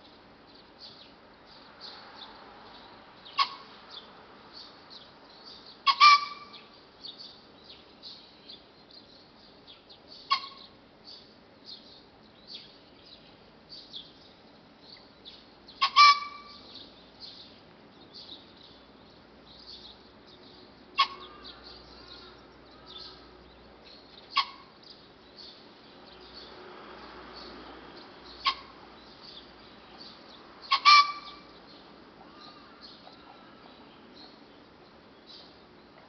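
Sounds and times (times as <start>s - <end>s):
pheasant crowing: 3.3s - 3.7s, 5.8s - 6.8s, 10.3s - 10.7s, 15.7s - 16.8s, 20.9s - 23.3s, 24.3s - 24.8s, 28.4s - 28.9s, 30.6s - 31.6s, 32.2s - 34.0s.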